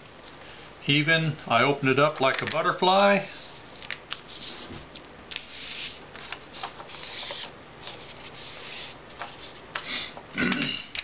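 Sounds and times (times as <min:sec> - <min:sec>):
paper rustling and crinkling: 0:02.2 - 0:09.6.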